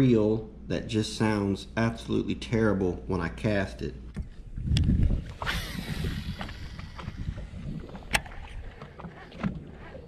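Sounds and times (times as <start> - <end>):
fishing reel spool spinning: 5.3 - 8.2.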